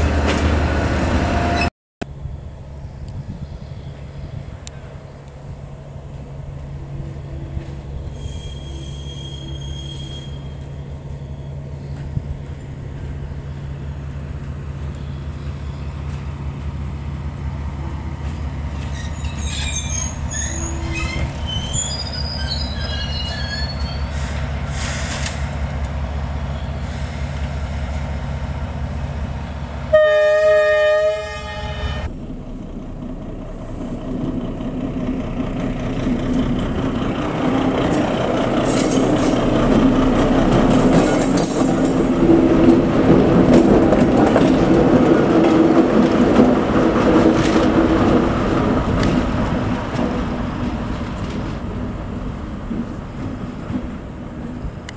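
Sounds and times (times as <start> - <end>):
diesel locomotive engine drone: 0.0 - 54.9
train wheels rumbling on rails: 0.0 - 54.9
air horn blast: 29.9 - 32.1.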